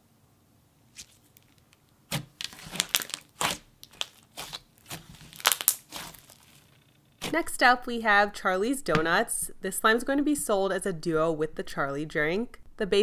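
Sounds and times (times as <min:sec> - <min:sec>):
slime crackling and popping: 0:00.9 - 0:07.3.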